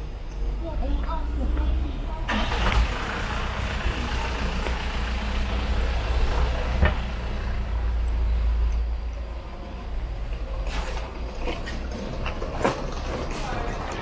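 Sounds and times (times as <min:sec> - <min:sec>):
low rumble of traffic: 0:00.0 - 0:14.0.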